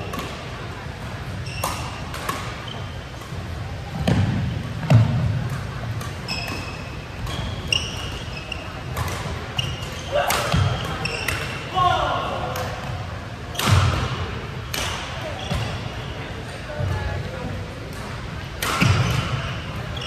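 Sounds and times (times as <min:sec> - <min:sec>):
sneakers squeaking on court: 0:01.3 - 0:05.3, 0:05.9 - 0:11.7, 0:15.0 - 0:17.1, 0:18.8 - 0:20.0
racket hitting shuttlecock: 0:01.5 - 0:03.4, 0:08.9 - 0:11.6, 0:13.5 - 0:15.7, 0:17.9 - 0:19.4.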